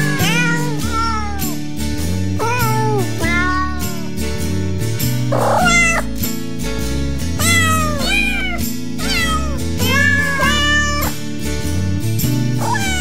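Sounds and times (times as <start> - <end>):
kitten mewing: 0.0 - 1.6, 2.4 - 4.1, 5.3 - 6.1, 7.4 - 11.2, 12.6 - 13.0
background music with steady beat: 0.0 - 13.0.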